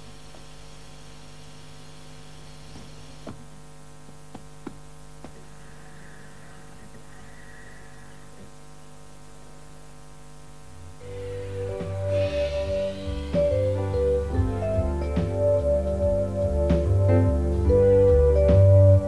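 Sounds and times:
steady machine hum: 0.0s - 19.0s
music: 11.0s - 19.0s.

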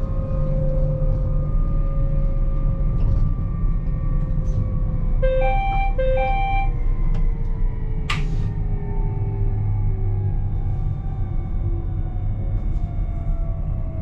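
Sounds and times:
train rumble with motor whine: 0.0s - 14.0s
two-note tone: 5.2s - 6.8s.

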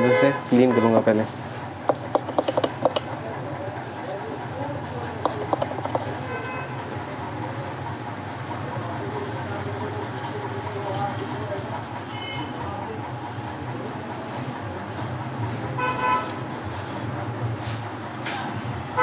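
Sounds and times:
vehicle horn toot: 0.0s - 1.0s, 6.2s - 6.8s, 15.8s - 16.4s
toothbrush scrubbing circuit board: 1.9s - 3.1s, 5.2s - 6.2s, 9.5s - 12.8s, 13.4s - 14.4s, 15.9s - 17.2s, 17.8s - 18.8s.

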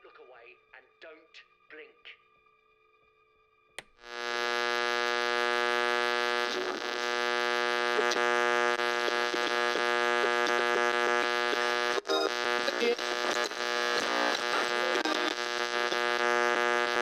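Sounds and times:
electronic buzzing drone: 4.0s - 17.0s.

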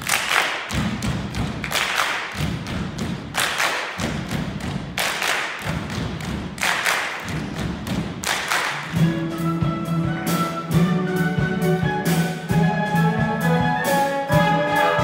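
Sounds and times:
dancers stamping and clapping: 0.0s - 9.0s
orchestra holding notes: 9.0s - 15.0s.

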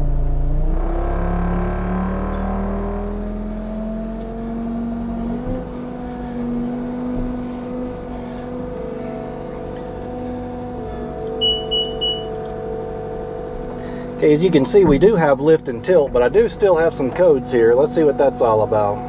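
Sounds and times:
diesel engine running: 0.0s - 19.0s
short high-pitched beeps: 11.4s - 12.3s.

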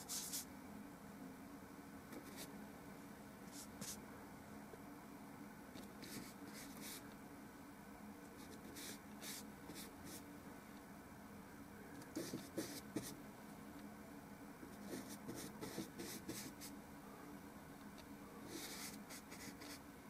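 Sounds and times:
paintbrush strokes on panel: 0.0s - 0.5s
faint low hum: 0.0s - 20.0s.

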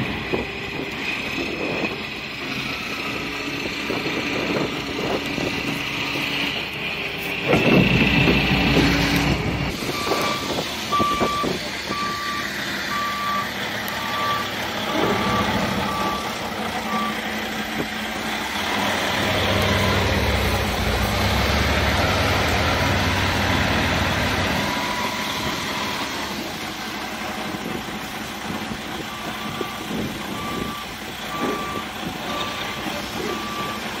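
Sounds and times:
truck diesel engine running: 0.0s - 34.0s
backup warning beeper: 9.9s - 17.2s.

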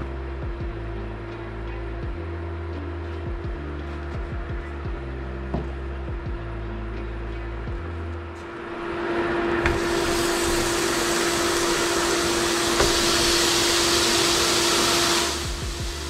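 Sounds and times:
induction burner hum: 0.0s - 16.0s
patties sizzling in a pan: 9.8s - 16.0s.

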